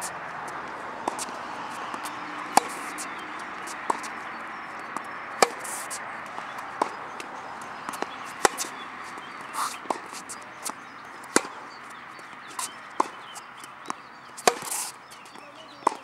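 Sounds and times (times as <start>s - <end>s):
tennis racquets hitting ball: 0.0s - 16.0s.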